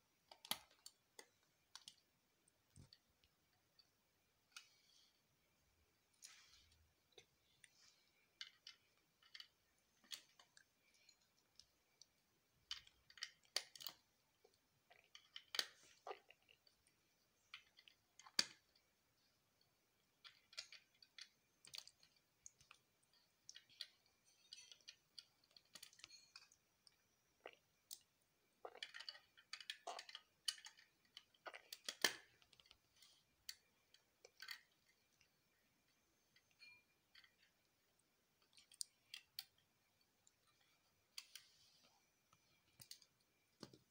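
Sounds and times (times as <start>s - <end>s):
plastic bricks clicking: 28.8s - 32.7s.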